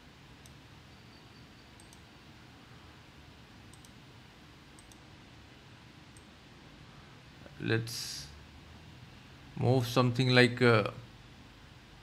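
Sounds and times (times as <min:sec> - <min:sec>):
low room hiss: 0:00.0 - 0:12.0
computer mouse clicks: 0:00.4 - 0:00.6, 0:01.7 - 0:02.1, 0:03.7 - 0:04.0, 0:04.8 - 0:05.1, 0:06.1 - 0:06.3.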